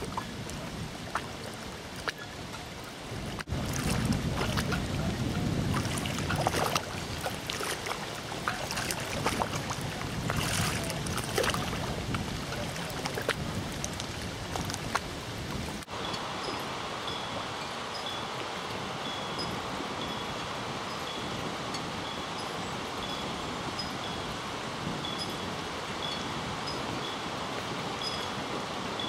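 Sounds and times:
water lapping against wall: 0.0s - 15.9s
wind buffeting microphone: 0.0s - 29.0s.

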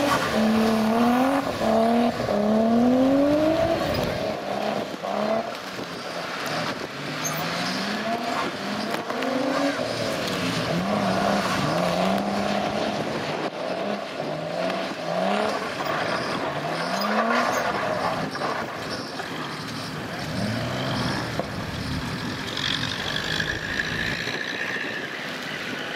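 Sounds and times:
car engine revving hard: 0.0s - 5.6s.

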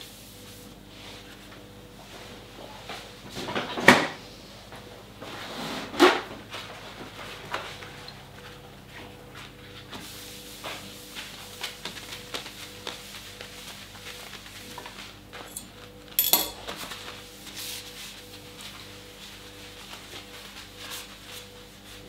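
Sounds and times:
paper towel wiping countertop: 0.0s - 3.2s, 6.5s - 15.5s, 16.8s - 22.0s.

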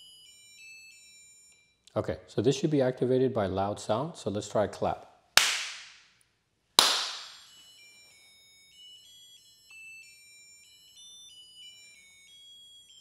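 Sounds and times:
hand clap with echo: 5.4s - 6.0s, 6.8s - 7.5s.

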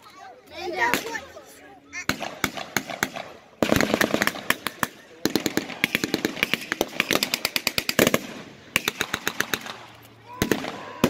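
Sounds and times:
single gunshots: 10.4s - 11.0s.

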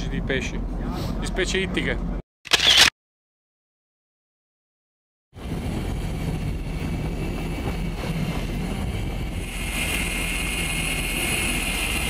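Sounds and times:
wind: 0.0s - 2.9s, 5.4s - 12.0s
boat rumble: 5.4s - 12.0s.

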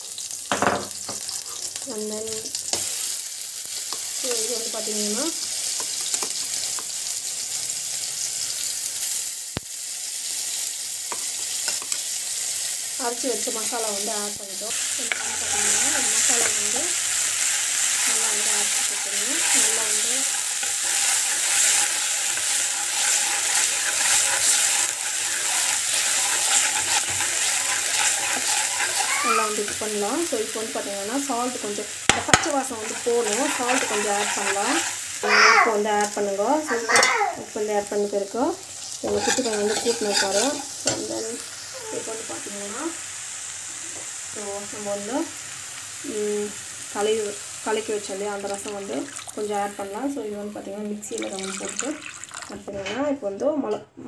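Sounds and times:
spices sizzling in hot oil: 0.0s - 52.7s.

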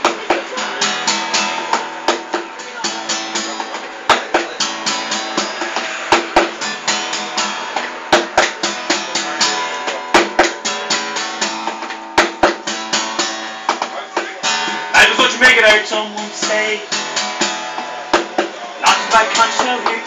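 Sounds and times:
sharp percussive hits: 0.0s - 15.4s
acoustic guitar strumming: 0.0s - 20.0s.

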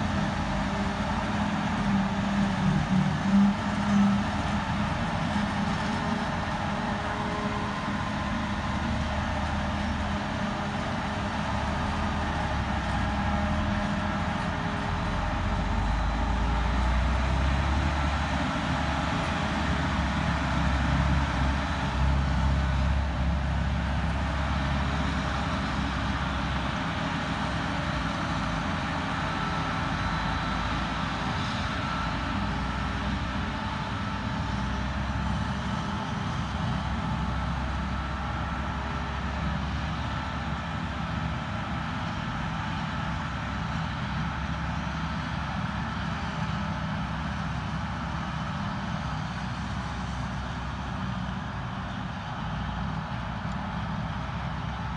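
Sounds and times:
tractor engine: 0.0s - 54.9s.

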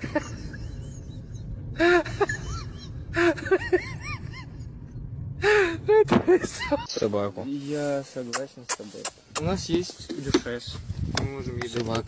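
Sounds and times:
steady low hum: 0.0s - 7.5s.

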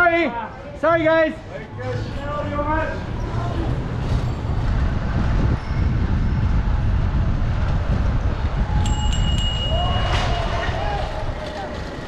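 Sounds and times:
wind buffeting microphone: 2.2s - 12.0s
bicycle bell ringing: 8.8s - 10.4s.

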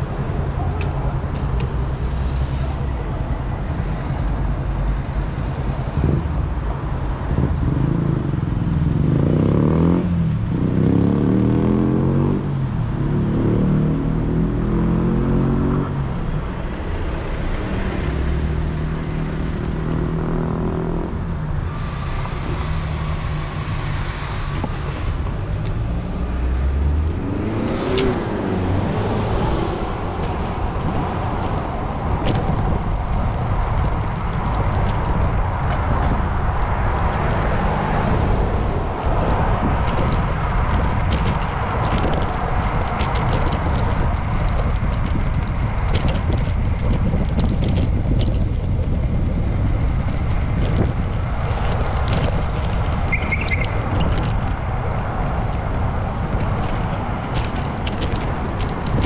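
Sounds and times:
traffic noise: 0.0s - 59.0s
vehicle engines running: 0.0s - 59.0s
vehicle passing: 16.8s - 59.0s.

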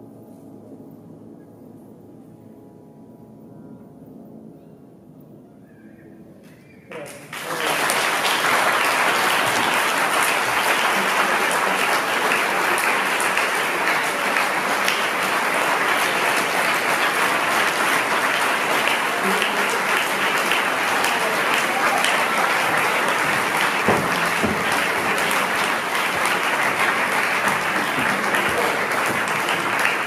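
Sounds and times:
audience applause: 6.9s - 30.0s.

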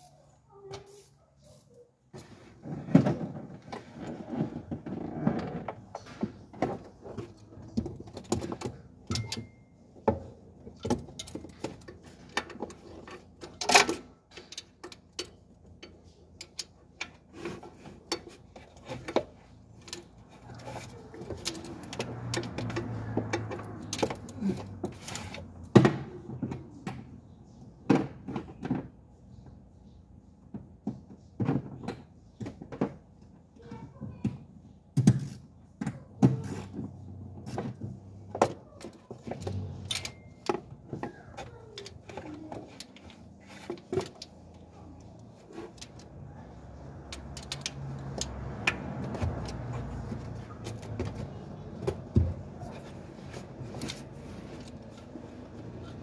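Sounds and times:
hand tools and metal parts clinking: 3.6s - 26.8s, 35.0s - 56.0s.

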